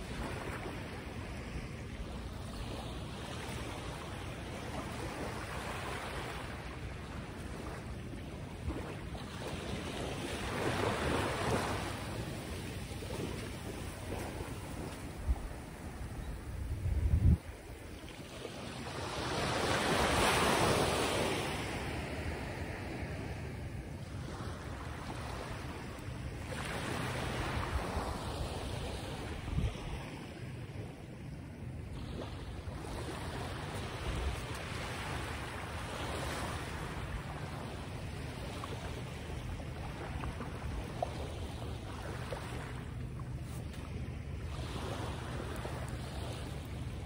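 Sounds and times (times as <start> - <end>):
waves washing in: 0.0 - 47.0
wind rumble on microphone: 0.0 - 47.0.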